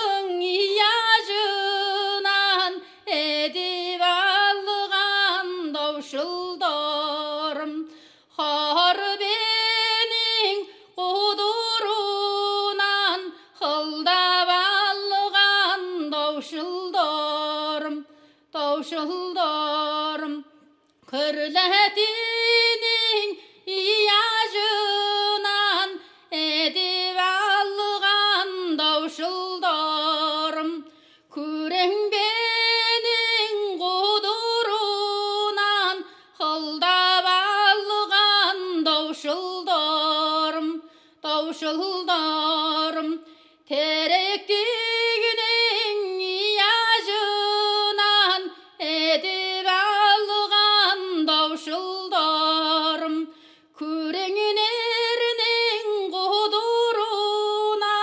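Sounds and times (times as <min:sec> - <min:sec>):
woman singing unaccompanied: 0:00.0 - 0:58.0
woman breathing: 0:07.9 - 0:08.3, 0:26.0 - 0:26.3, 0:30.9 - 0:31.3, 0:36.0 - 0:36.4, 0:40.8 - 0:41.2, 0:43.2 - 0:43.7, 0:53.3 - 0:53.8.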